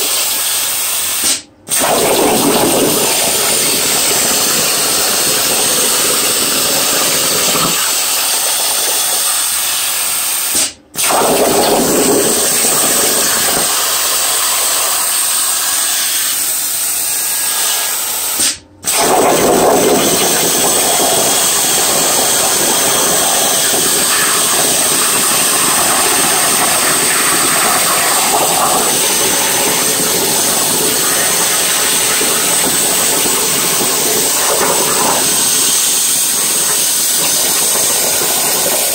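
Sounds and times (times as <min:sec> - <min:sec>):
plasma torch hissing: 0:00.1 - 0:38.9.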